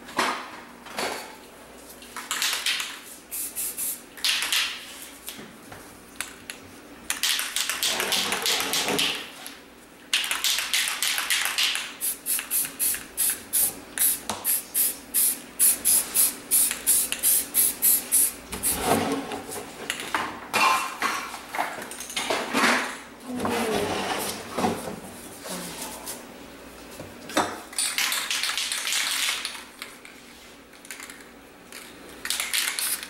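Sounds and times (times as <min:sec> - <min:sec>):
spray paint can hissing: 0:03.3 - 0:04.0, 0:12.0 - 0:18.4, 0:32.5 - 0:33.0.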